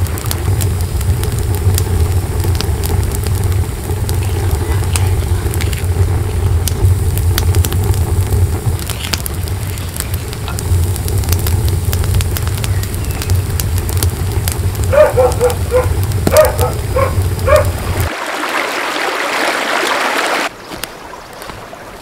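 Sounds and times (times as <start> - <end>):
wood fire crackling and popping: 0.0 - 18.2, 20.5 - 22.0
low fire rumble: 0.0 - 18.4.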